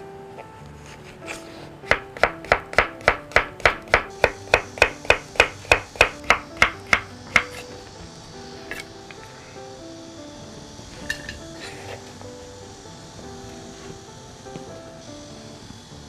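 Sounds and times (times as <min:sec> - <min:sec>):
soft background music: 0:00.0 - 0:16.0
knife slicing on wooden board: 0:04.6 - 0:07.7.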